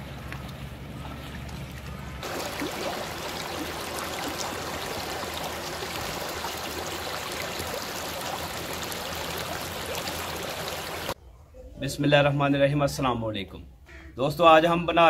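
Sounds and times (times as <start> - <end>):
stream flowing over stones: 2.2 - 11.2.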